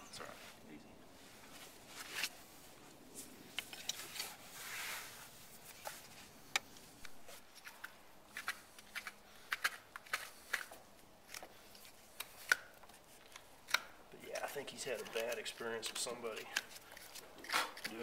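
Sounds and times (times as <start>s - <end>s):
hoof knife scraping clicks: 6.5s - 13.9s.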